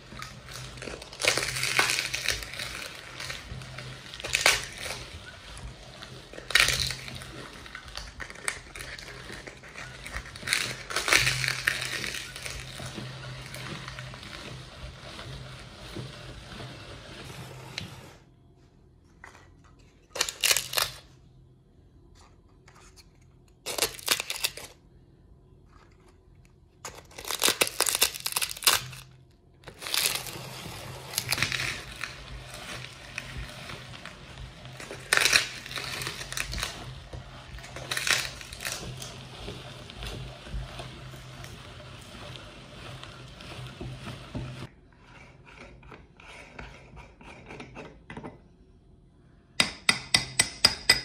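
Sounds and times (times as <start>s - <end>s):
cones crunching in meat grinder: 0.0s - 18.2s, 20.1s - 21.1s, 23.5s - 24.8s, 26.8s - 44.8s.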